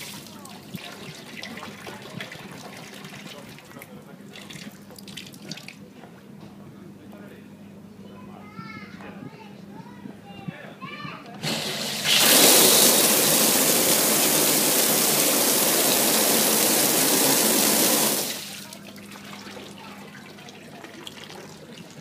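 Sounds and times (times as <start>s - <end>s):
hot tub jets spraying water: 0.0s - 3.9s, 11.4s - 22.0s.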